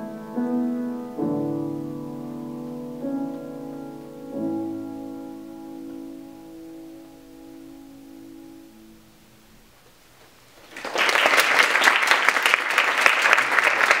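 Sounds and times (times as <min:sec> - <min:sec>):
grand piano chord: 0:00.0 - 0:09.8
audience applause: 0:10.6 - 0:14.0.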